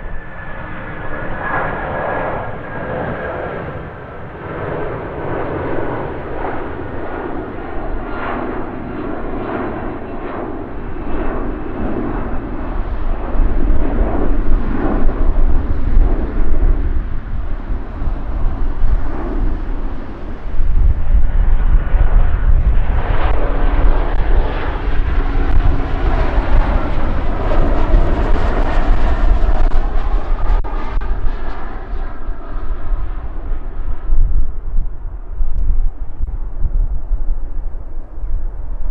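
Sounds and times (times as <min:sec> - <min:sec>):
jet engines deep rumble: 0:00.0 - 0:38.9.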